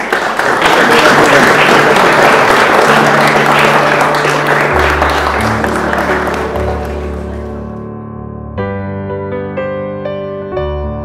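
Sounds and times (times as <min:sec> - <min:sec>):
people applauding: 0:00.0 - 0:07.8.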